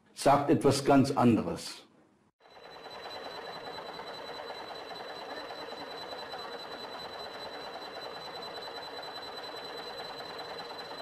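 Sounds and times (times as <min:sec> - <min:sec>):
high-pitched whine: 0:02.4 - 0:11.0.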